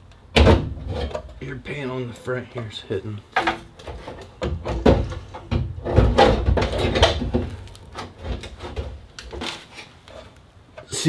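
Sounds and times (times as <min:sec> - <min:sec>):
sheet metal clunking and scraping: 0:03.4 - 0:09.6.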